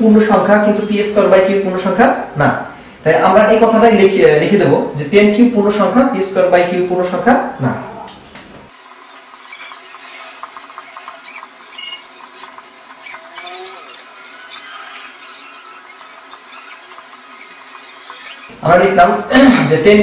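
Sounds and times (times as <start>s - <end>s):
marker squeaking on whiteboard: 9.0s - 18.5s.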